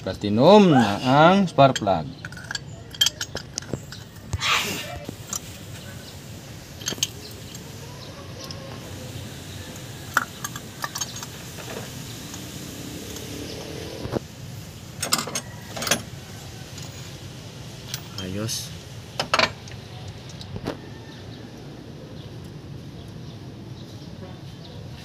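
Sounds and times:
metallic clicks of spark plugs: 19.4 - 20.6.

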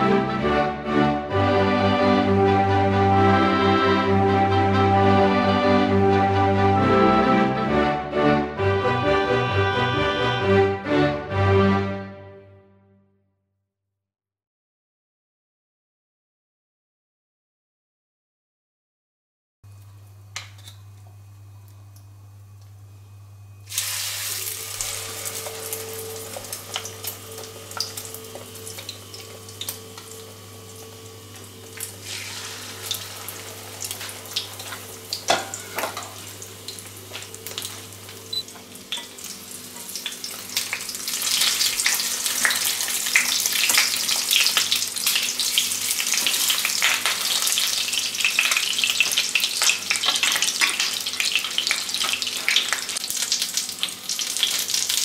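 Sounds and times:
fish frying in oil: 23.6 - 55.0.

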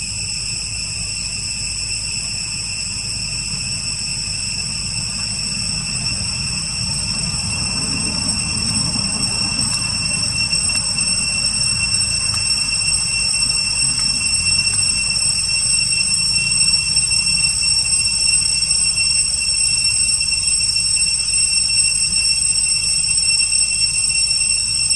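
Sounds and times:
high-pitched whine: 0.0 - 24.9
low rumble: 2.9 - 17.0.

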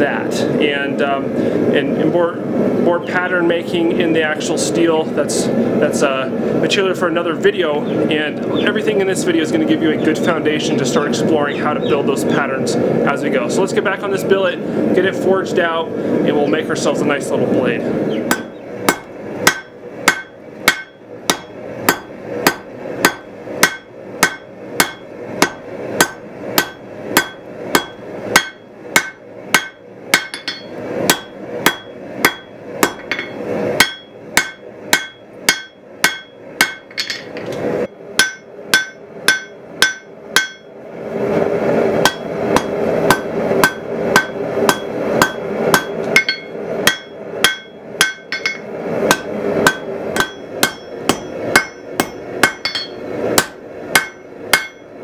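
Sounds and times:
steady rushing noise: 0.0 - 55.0
hammer striking steel on anvil: 18.3 - 37.4, 38.2 - 40.7, 42.0 - 54.9.

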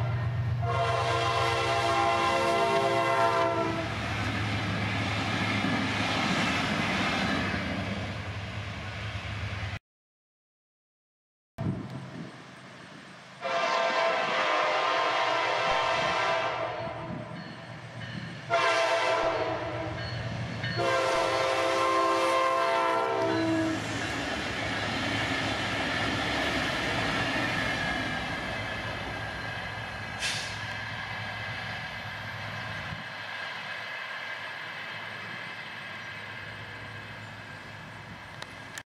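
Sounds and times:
locomotives rumbling past: 0.0 - 9.8, 16.0 - 38.8
train wheels on rails: 0.0 - 9.8, 11.7 - 38.8
locomotive air horn blasts: 0.6 - 4.0, 13.4 - 17.3, 18.5 - 20.0, 20.8 - 23.8, 30.2 - 30.6.

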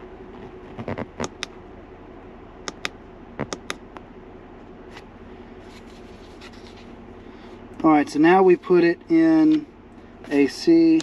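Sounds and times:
car engine idling: 0.0 - 11.0
push buttons clicking: 2.6 - 3.8.

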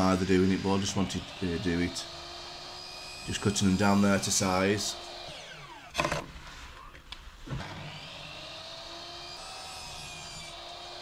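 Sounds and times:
mitre saw motor whining: 0.0 - 11.0.

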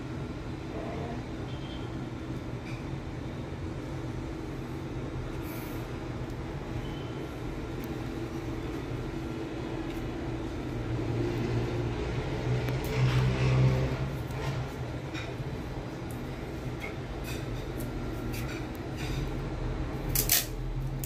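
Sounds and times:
low rumble with hum: 0.0 - 21.0.

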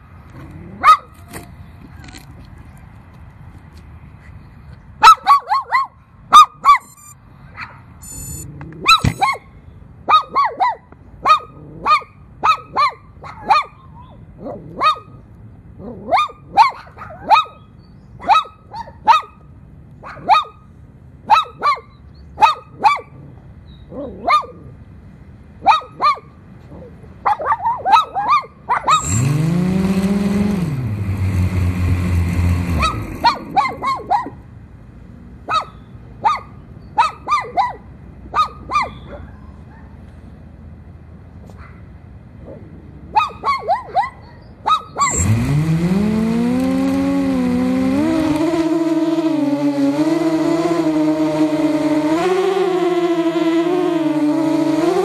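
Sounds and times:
dog barking: 0.8 - 1.2, 5.0 - 6.9, 7.5 - 7.9, 10.1 - 15.2, 15.8 - 17.6, 18.2 - 19.4, 20.0 - 20.6, 21.3 - 23.2, 23.9 - 24.6, 25.6 - 26.3, 27.2 - 29.1, 32.8 - 34.4, 35.5 - 40.0, 41.5 - 45.2
quadcopter motors whirring: 6.7 - 7.2, 8.0 - 9.4, 28.9 - 34.2, 45.0 - 55.0.

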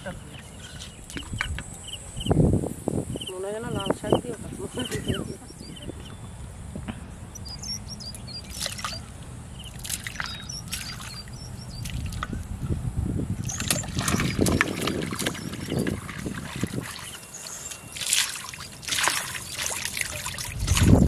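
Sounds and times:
hands scooping water: 0.0 - 1.6, 8.4 - 12.5, 13.4 - 21.0
water splashing and trickling: 0.0 - 2.2, 7.2 - 21.0.

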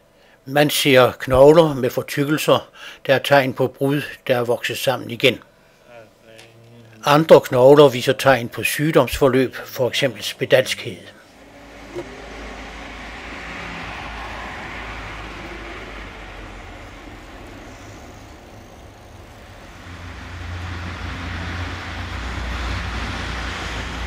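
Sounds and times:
low traffic rumble: 5.9 - 24.0
passing vehicle tyre noise: 10.7 - 24.0.

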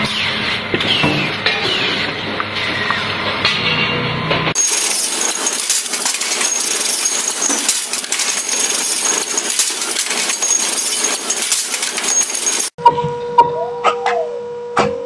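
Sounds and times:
metal parts clinking and rattling: 4.6 - 12.8.

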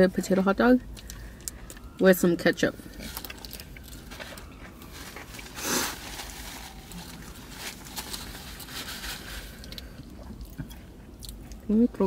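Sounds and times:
food packaging rustling: 3.0 - 9.9.

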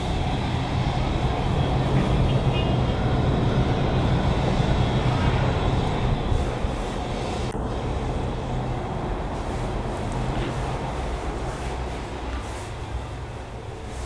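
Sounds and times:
distant traffic rumble: 0.0 - 14.0.

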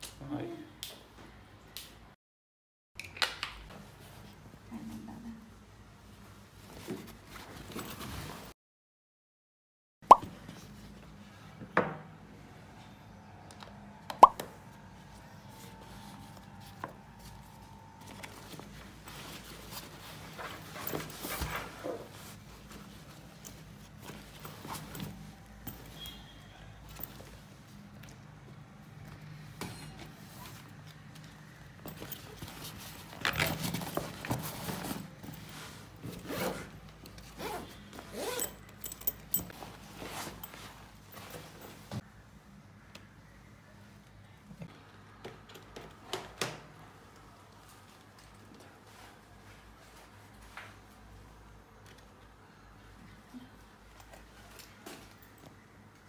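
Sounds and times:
pop sound effect: 10.1 - 10.3
backpack zipper rasping: 36.1 - 38.6.

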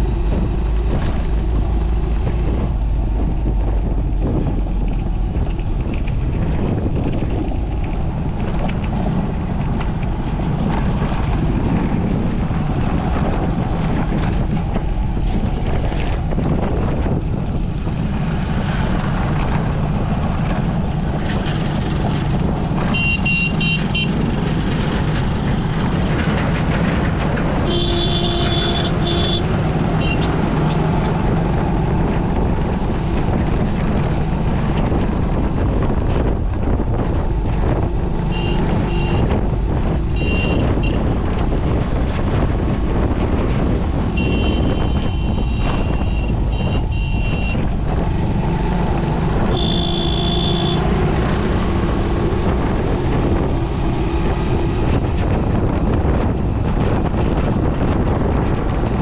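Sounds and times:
motorcycle engine rumble: 0.0 - 59.0
road and wind noise: 0.0 - 59.0
vehicle horn tooting: 22.9 - 24.2, 27.6 - 30.3, 38.3 - 39.4, 40.2 - 41.0, 44.1 - 47.7, 49.5 - 50.9.

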